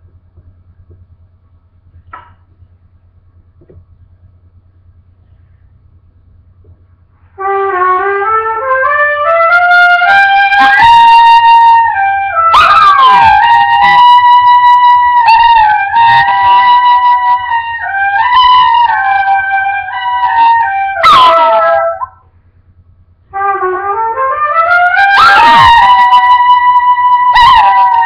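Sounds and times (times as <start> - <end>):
trumpet playing scale and held notes: 7.2 - 22.2, 23.3 - 28.0.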